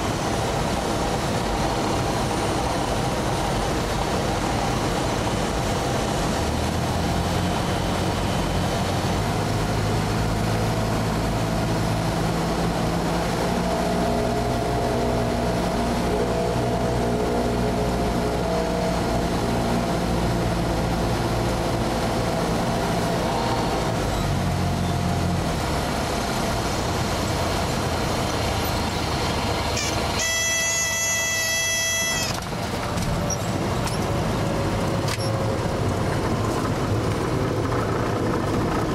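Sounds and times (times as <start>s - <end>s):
airplane engine and propeller drone: 0.0s - 38.9s
brief high-pitched tone: 29.8s - 32.4s.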